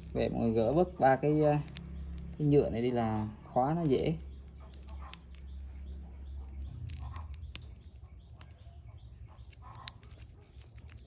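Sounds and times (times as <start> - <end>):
watch bracelet clicks: 3.9 - 11.0.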